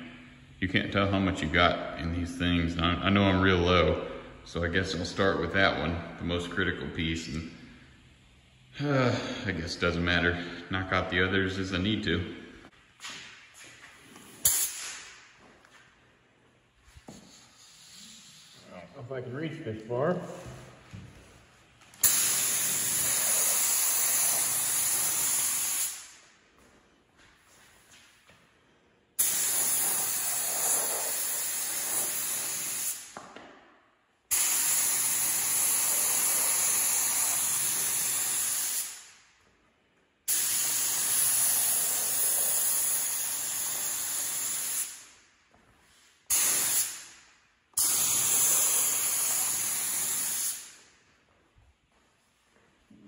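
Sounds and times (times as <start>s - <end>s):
paint spray gun hissing: 22.0s - 26.0s, 29.2s - 33.1s, 34.3s - 39.0s, 40.3s - 45.0s, 47.8s - 50.8s.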